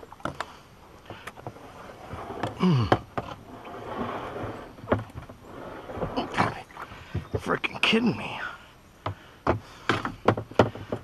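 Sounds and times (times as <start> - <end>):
kayak scraping against log: 0.2 - 7.9
low groan: 2.3 - 3.7
kayak hull knocking on log: 9.0 - 11.0.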